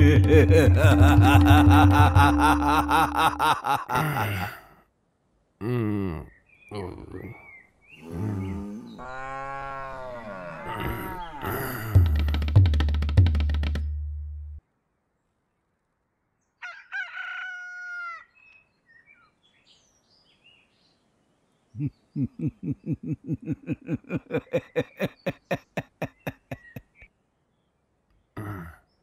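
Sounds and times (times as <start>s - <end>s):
faint bird chirps: 5.7s - 9.4s, 18.0s - 29.0s
rooster crowing: 16.6s - 18.3s.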